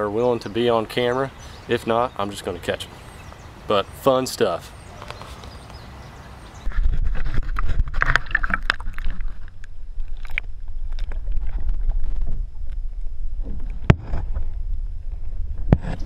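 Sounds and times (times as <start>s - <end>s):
low underwater rumble: 6.7s - 16.0s.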